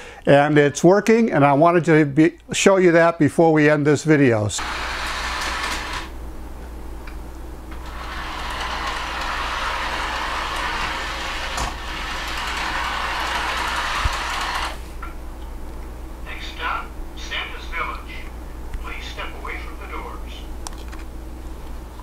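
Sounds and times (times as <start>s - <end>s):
toy trolley motor whirring: 4.6s - 6.1s, 7.8s - 14.8s.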